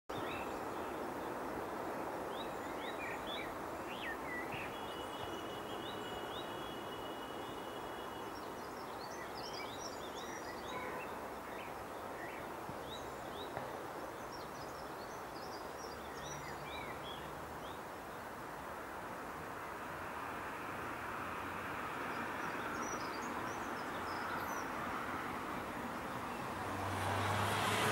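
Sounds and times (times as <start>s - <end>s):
small birds chirping: 0.1s - 18.3s.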